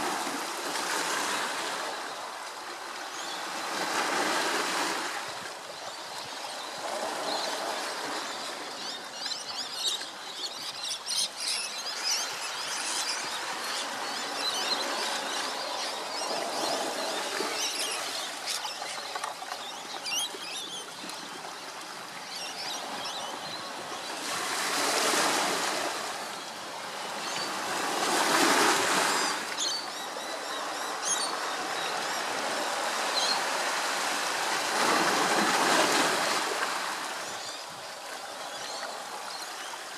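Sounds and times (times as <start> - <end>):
surf washing: 12.2 - 39.9.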